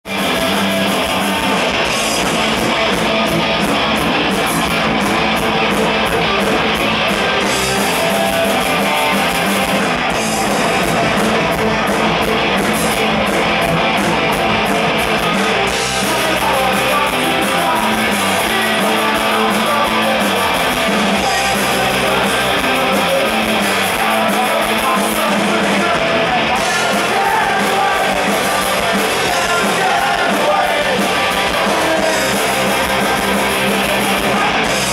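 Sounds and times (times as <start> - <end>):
electric guitars: 0.0 - 34.9
drum kit with cymbals: 0.1 - 34.9
person singing: 15.7 - 34.9.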